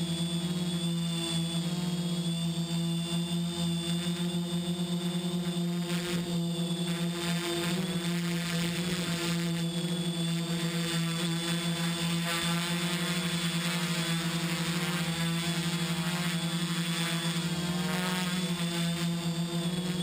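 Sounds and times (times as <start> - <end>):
drone propellers droning: 0.0 - 20.0
thin high whine: 0.0 - 20.0.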